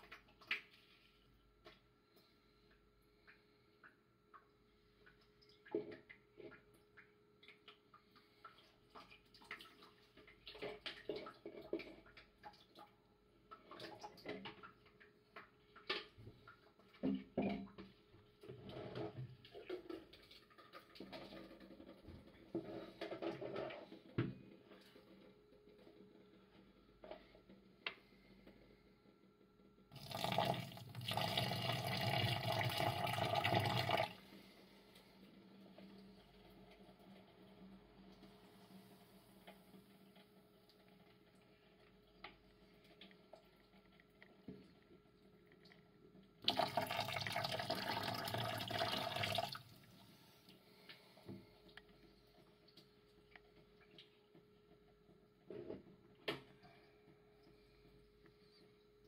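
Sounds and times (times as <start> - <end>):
water trickling and dripping: 0.0 - 18.6, 40.1 - 49.9
water rushing and pouring: 46.4 - 49.7.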